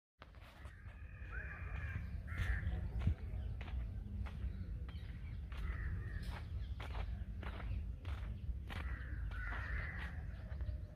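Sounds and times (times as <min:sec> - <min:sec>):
crows cawing: 0:00.6 - 0:03.1, 0:05.5 - 0:06.5, 0:08.7 - 0:10.7
steady low rumble: 0:00.8 - 0:10.9.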